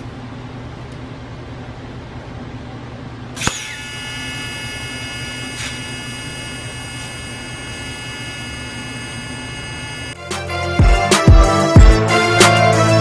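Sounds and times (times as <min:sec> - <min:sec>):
welding machine low hum: 0:03.1 - 0:10.2
welding arc buzzing hiss: 0:03.4 - 0:10.2.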